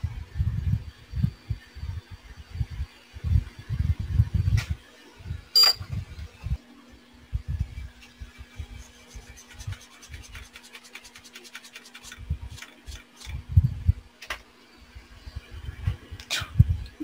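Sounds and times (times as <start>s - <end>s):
hand tools scratching and rubbing: 8.0s - 13.4s.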